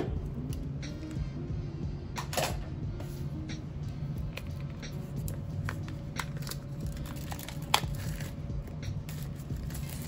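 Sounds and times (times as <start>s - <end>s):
plastic film crinkling: 6.2s - 8.4s.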